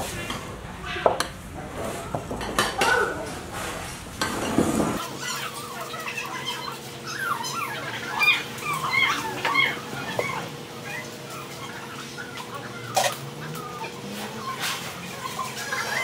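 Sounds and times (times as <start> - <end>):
chickens clucking: 5.2 - 16.0
bowls and utensils clinking: 8.7 - 16.0.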